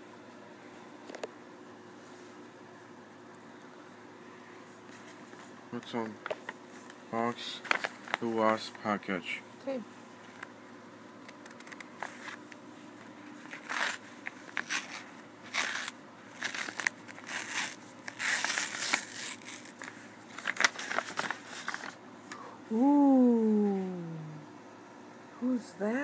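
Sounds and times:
paper envelope tearing and crinkling: 7.5s - 8.6s, 11.4s - 12.4s, 13.3s - 22.0s.

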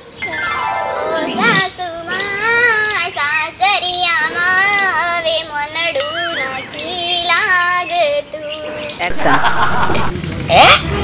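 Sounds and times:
high-pitched voice singing: 1.0s - 9.1s.

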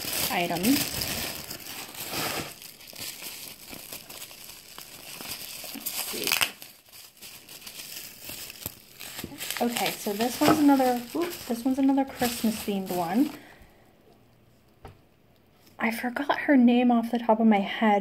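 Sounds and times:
paper and bubble wrap crinkling: 0.0s - 13.6s.

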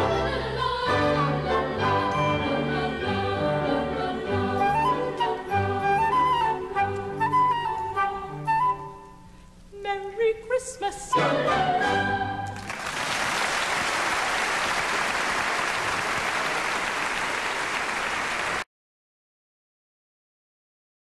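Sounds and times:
flute and orchestra playing: 0.9s - 9.3s, 11.1s - 12.6s
audience applause: 12.5s - 18.7s.

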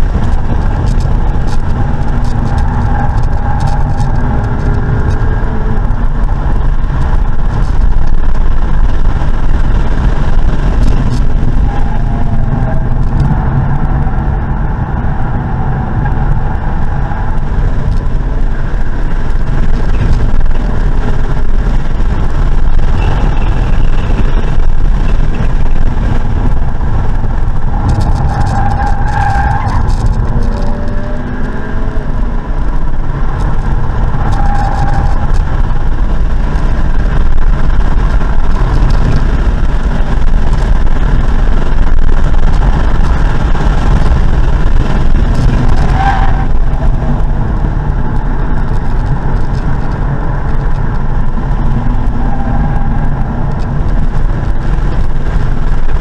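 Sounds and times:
car engine: 0.0s - 56.0s
tyre noise: 0.0s - 56.0s
wind noise: 0.0s - 56.0s.

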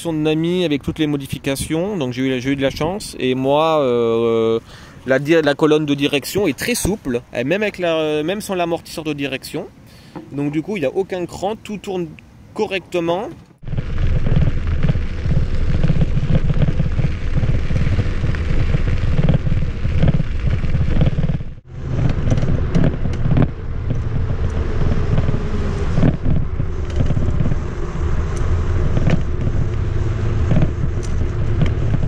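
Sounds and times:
wind buffeting microphone: 13.6s - 32.0s.

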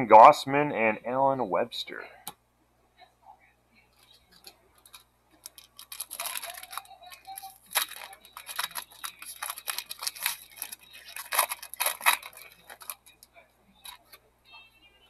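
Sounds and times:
foil wrapper tearing and crinkling: 4.8s - 13.2s.

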